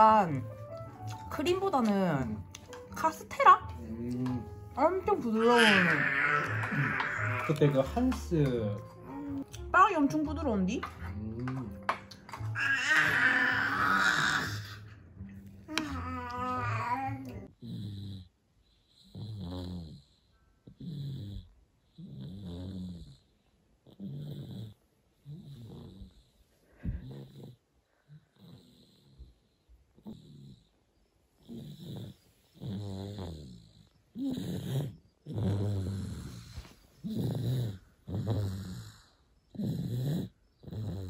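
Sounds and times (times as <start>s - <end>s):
baby snoring: 5.2s - 7.8s, 12.6s - 14.9s, 19.0s - 23.3s, 23.9s - 26.4s, 27.0s - 29.3s, 31.4s - 41.0s.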